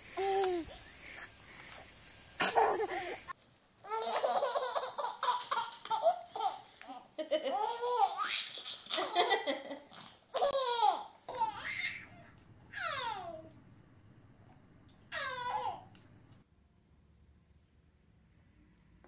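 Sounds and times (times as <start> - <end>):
baby laughing: 2.4 - 13.4, 15.1 - 15.8.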